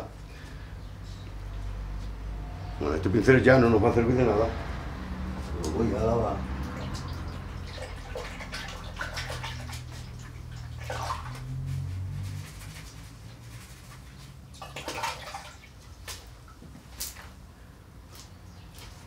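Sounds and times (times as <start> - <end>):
water running and splashing: 6.5 - 13.8, 14.4 - 16.4.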